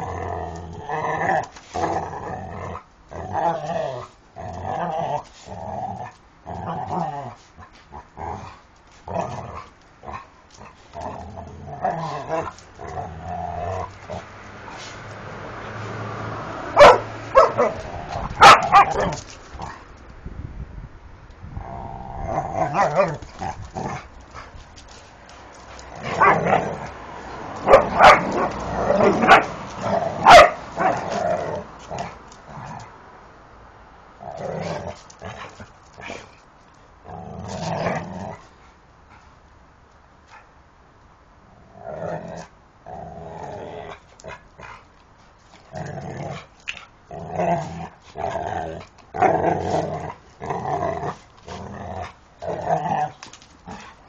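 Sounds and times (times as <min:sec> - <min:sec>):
dogs growling: 0:00.0 - 0:19.9, 0:21.6 - 0:33.0, 0:34.2 - 0:36.4, 0:37.0 - 0:38.6, 0:41.6 - 0:44.9, 0:45.5 - 0:54.0
dogs barking loudly: 0:11.7 - 0:19.8, 0:22.3 - 0:24.6, 0:25.6 - 0:32.2.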